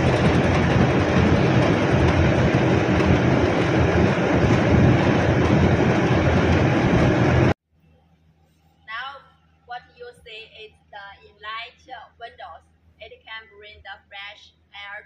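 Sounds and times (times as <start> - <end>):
large exhaust fans running: 0.0 - 7.6.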